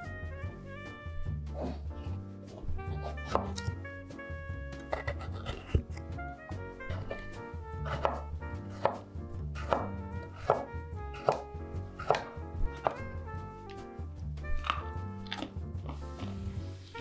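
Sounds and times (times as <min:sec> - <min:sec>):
background music: 0:00.0 - 0:17.0
knife chopping on wooden board: 0:02.5 - 0:03.7, 0:04.8 - 0:06.1, 0:06.9 - 0:13.1.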